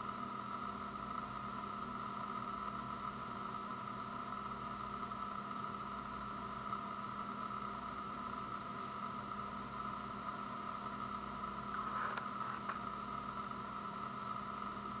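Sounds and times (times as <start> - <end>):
background hum and hiss: 0.0 - 15.0.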